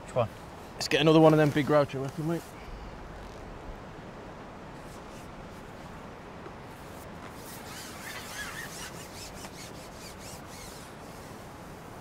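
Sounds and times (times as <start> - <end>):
fishing pole rubbing through hands: 4.8 - 6.0, 6.7 - 11.6.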